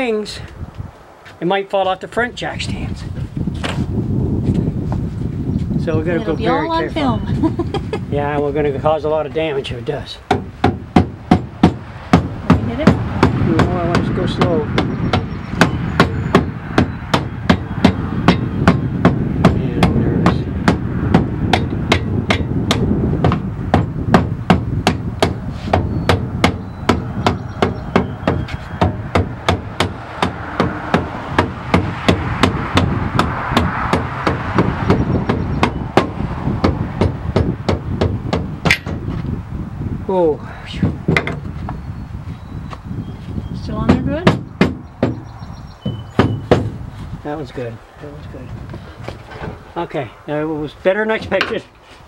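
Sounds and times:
hammer striking metal frame: 10.3s - 39.0s.

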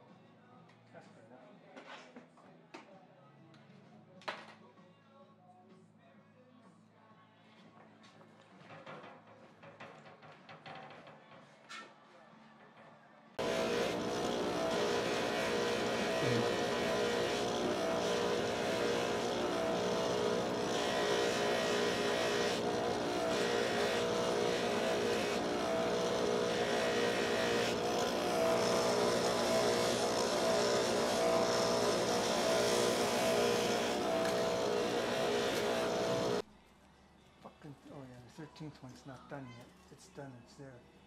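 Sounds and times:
polishing hiss: 13.4s - 36.4s
polishing motor hum and whine: 13.4s - 36.4s.

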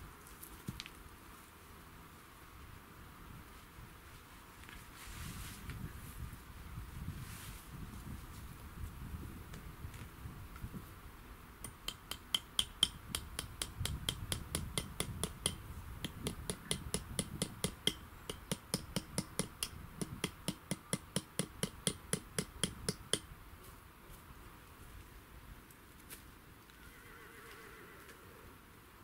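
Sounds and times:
low wind rumble: 5.1s - 11.9s, 12.7s - 20.6s.

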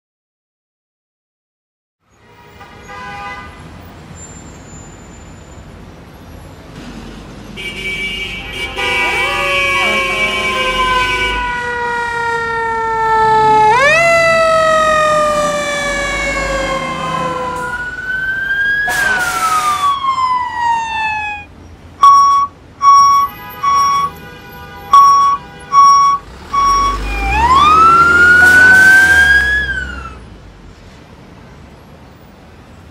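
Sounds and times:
fire truck siren wailing: 9.0s - 24.2s, 24.9s - 30.2s
loud short beeps: 22.0s - 24.2s, 24.9s - 27.2s.

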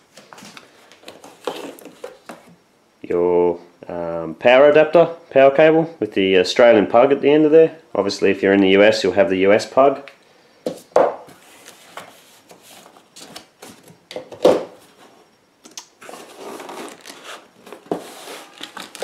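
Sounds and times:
cardboard and plastic rustling: 0.1s - 2.5s, 11.3s - 15.2s, 16.0s - 19.0s
items knocking on box: 14.1s - 14.8s.

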